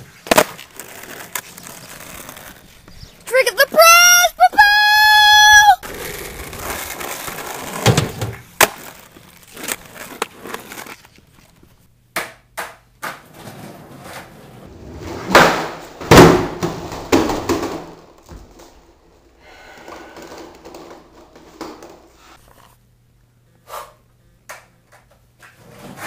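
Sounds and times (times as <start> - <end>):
skateboard crashing on concrete: 0.0 - 2.7, 5.8 - 11.0, 12.2 - 18.8.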